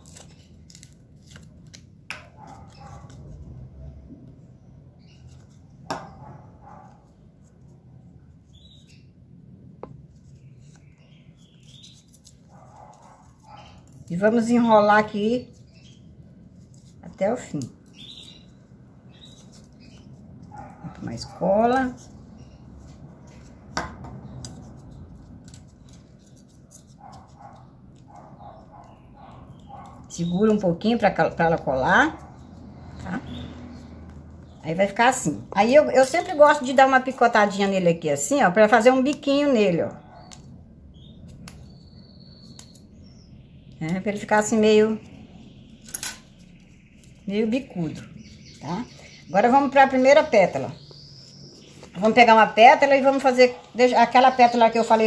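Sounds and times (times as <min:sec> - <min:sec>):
foam strip handling: 0:00.0 - 0:03.3.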